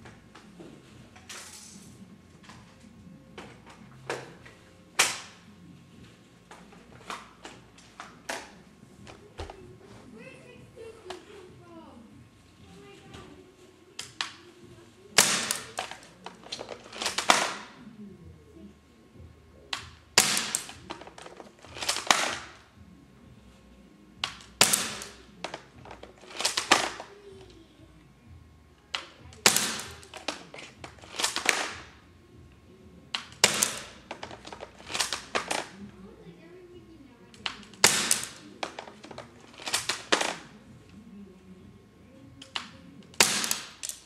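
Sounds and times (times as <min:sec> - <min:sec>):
pellets cracking a disc: 0:00.0 - 0:05.5, 0:06.2 - 0:09.9, 0:12.9 - 0:17.9, 0:19.6 - 0:22.8, 0:24.2 - 0:27.6, 0:28.8 - 0:32.1, 0:33.1 - 0:36.1, 0:37.3 - 0:41.0, 0:42.3 - 0:44.0
airsoft rifle shots: 0:15.2 - 0:17.8, 0:19.8 - 0:22.6, 0:24.2 - 0:25.3, 0:29.4 - 0:32.0, 0:33.2 - 0:35.8, 0:37.4 - 0:38.8, 0:43.1 - 0:44.0.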